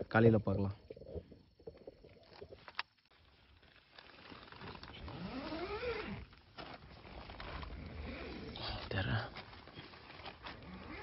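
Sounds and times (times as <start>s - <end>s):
tent zipper rasping: 3.3s - 11.0s.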